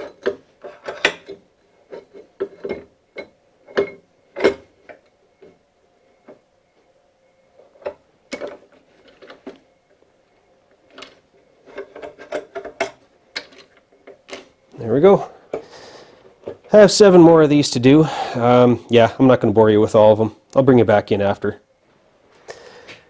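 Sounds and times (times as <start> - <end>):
metallic clunks and clicks: 0.0 - 5.5.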